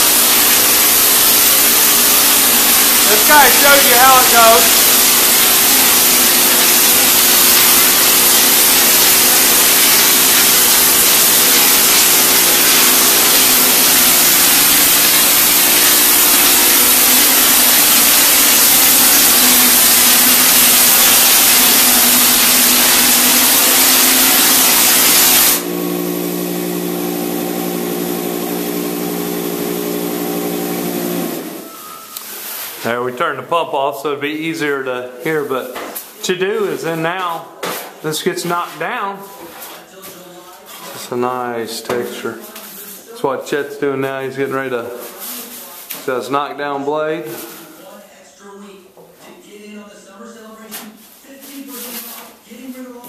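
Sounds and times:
texture spray gun hissing: 0.0s - 31.7s
pump humming: 0.0s - 31.8s.

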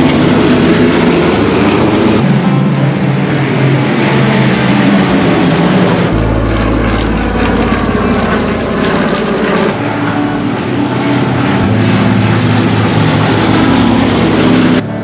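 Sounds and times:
propeller planes droning overhead: 0.0s - 15.0s.

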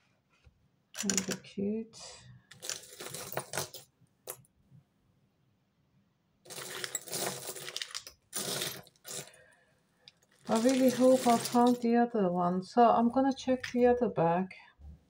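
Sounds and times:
metal jewellery clinking: 2.5s - 4.5s, 6.5s - 9.3s.

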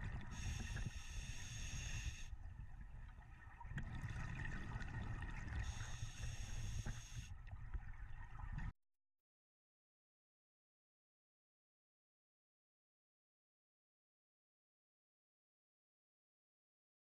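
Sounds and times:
low rumble of water: 0.0s - 8.8s
regulator breathing hiss: 0.2s - 2.4s, 5.6s - 7.3s.

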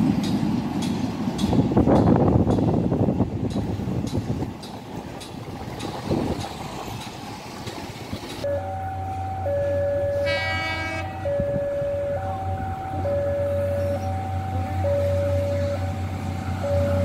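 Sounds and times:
street traffic: 0.0s - 17.0s
level crossing two-tone alarm: 8.4s - 17.0s
train horn: 10.1s - 11.4s.

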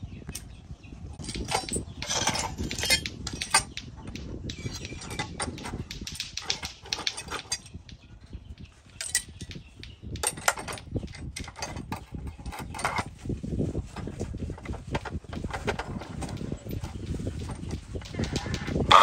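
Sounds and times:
metallic clinks and knocks: 1.2s - 13.1s.

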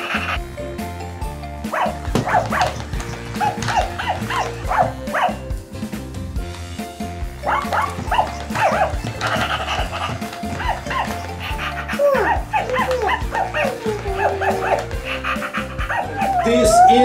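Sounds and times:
background music: 0.0s - 17.0s
toy dog yapping barks: 1.7s - 5.4s, 7.4s - 14.9s.

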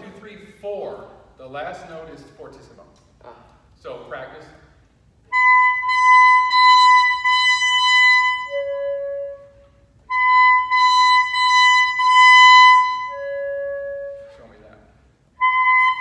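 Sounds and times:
saxophone playing: 5.2s - 16.0s.

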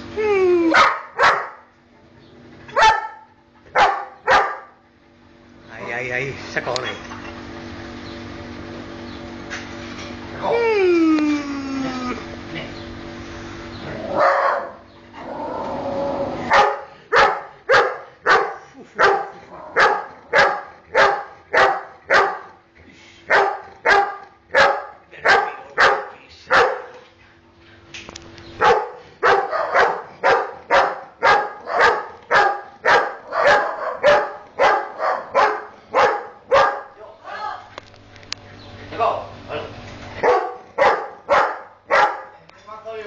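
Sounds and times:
dog barking: 0.7s - 1.7s, 2.7s - 4.8s, 14.2s - 14.8s, 16.5s - 22.6s, 23.3s - 27.0s, 28.6s - 37.0s, 40.2s - 42.4s.

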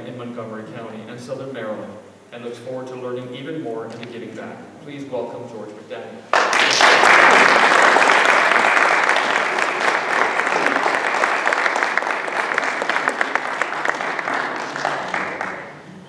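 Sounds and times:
audience applauding: 6.3s - 16.0s.

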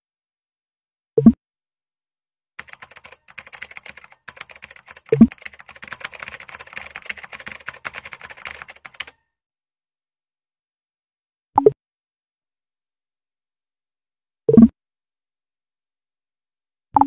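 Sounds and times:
keyboard key clicks: 2.6s - 9.1s.

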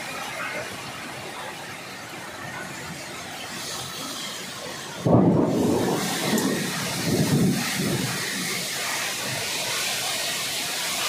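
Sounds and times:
heavy rain: 0.0s - 11.0s
wind: 0.0s - 11.0s
rumbling thunderclap: 5.0s - 9.6s.

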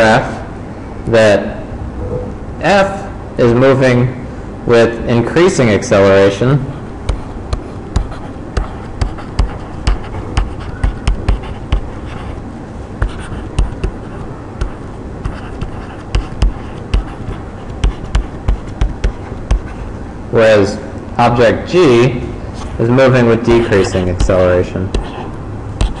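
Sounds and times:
stylus tapping and scratching on tablet: 6.7s - 12.4s, 13.0s - 19.9s, 23.4s - 26.0s.

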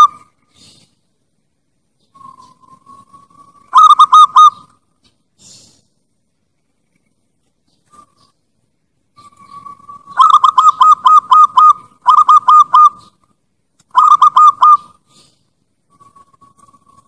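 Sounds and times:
dove cooing: 0.0s - 0.9s, 2.0s - 4.8s, 9.2s - 13.2s, 13.9s - 17.0s.

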